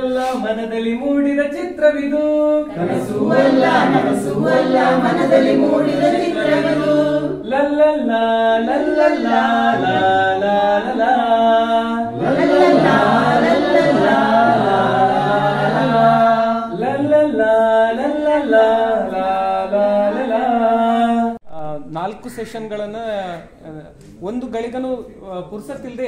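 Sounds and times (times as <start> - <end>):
group singing unaccompanied: 2.3 - 21.4.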